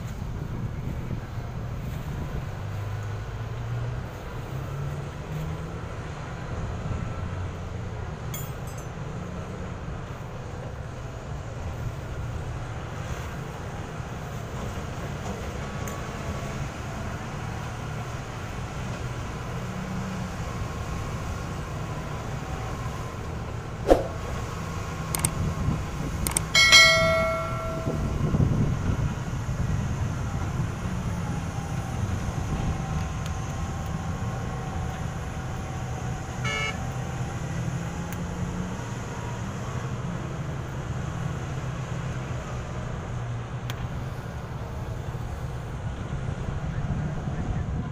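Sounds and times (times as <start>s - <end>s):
distant diesel engines droning: 0.0s - 47.9s
sharp clicks: 26.2s - 26.5s
short high tone: 26.6s - 28.3s.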